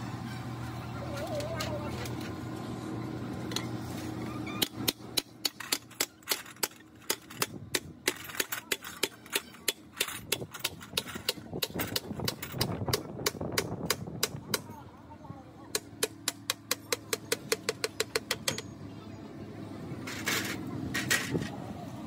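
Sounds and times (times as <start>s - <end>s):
hammer striking metal: 15.7s - 18.7s.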